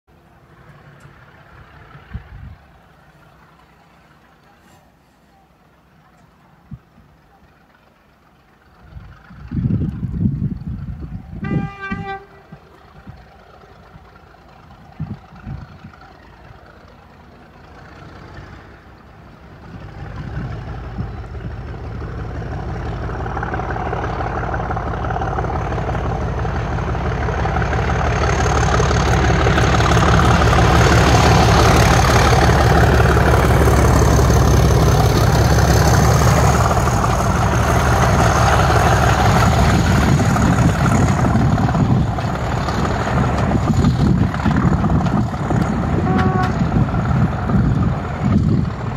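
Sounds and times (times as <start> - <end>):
diesel locomotive engine rumble: 0.1 - 48.9
train horn blast: 11.3 - 12.7, 45.8 - 46.9.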